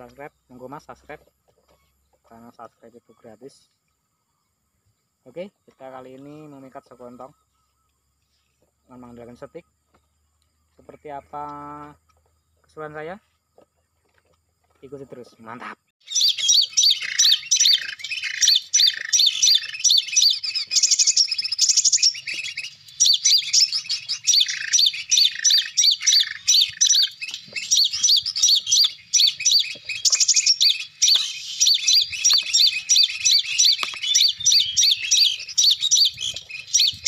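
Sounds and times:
rapid high-pitched bird chirps: 15.6s - 37.0s.

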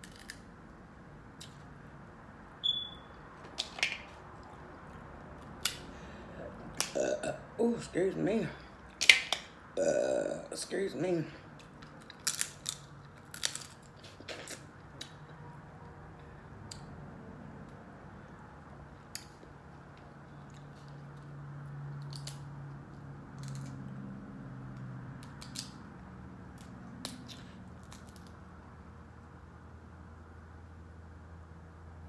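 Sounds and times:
chewing and wet smacks: 19.1s - 24.0s.

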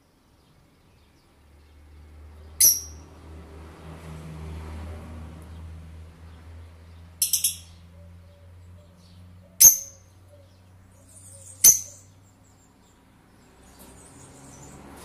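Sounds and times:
bird chirping: 2.4s - 3.0s, 6.3s - 14.9s
shrill bird calls: 7.2s - 12.2s.

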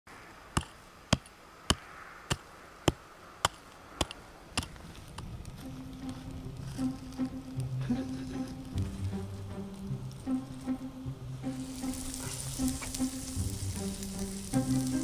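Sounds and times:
hand tool chopping stony ground: 0.6s - 5.3s
faint music: 3.8s - 15.0s.

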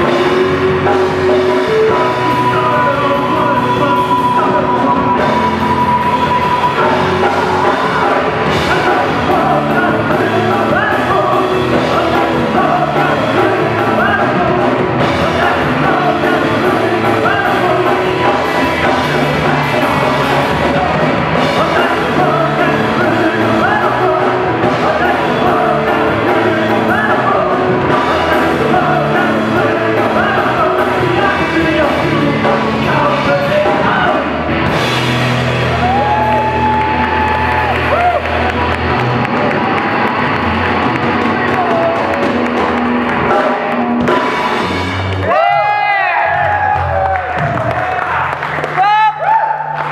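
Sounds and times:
man singing: 0.0s - 34.9s
live rock band playing: 0.0s - 48.8s.

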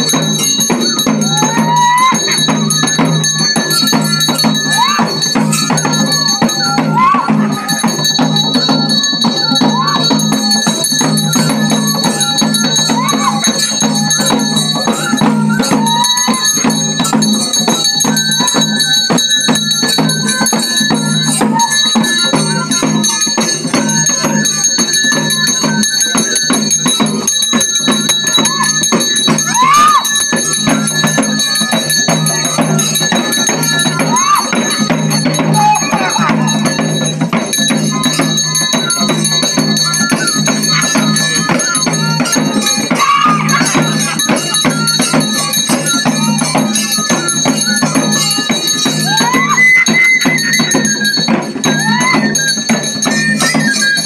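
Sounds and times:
drumming: 0.0s - 54.0s
jingling bells: 0.0s - 54.0s.

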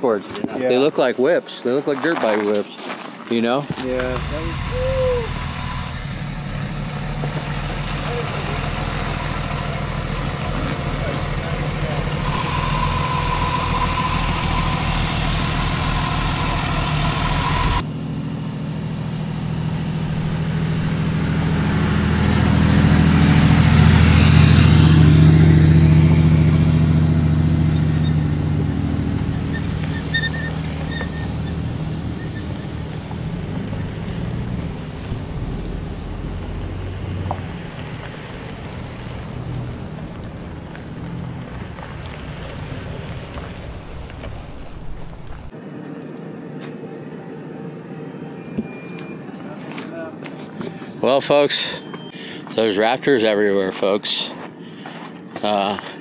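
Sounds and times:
trucks driving past on dirt: 1.7s - 45.7s
truck engine idling: 3.8s - 45.5s.

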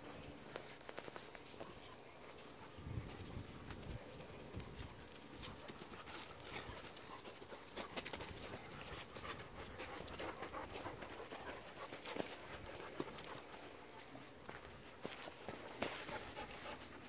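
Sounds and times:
dog paws thudding and pattering: 2.4s - 13.8s.

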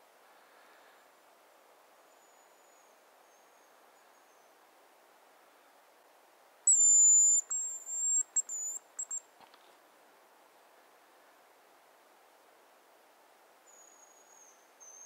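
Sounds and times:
high thin whistle: 6.7s - 9.2s.

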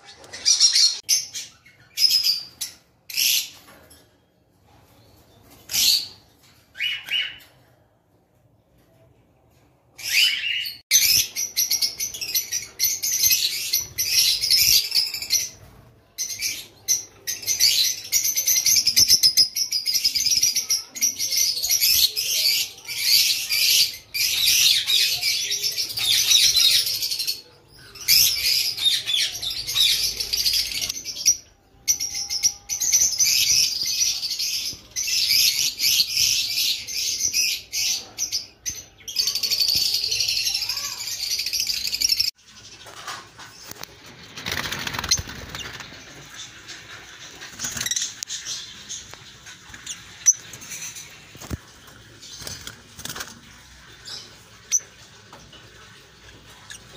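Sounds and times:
lovebirds chirping: 21.6s - 56.9s.

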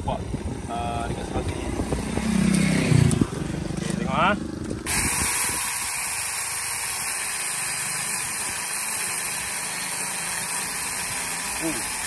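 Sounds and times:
cordless chainsaw motor whirring: 4.7s - 12.0s.

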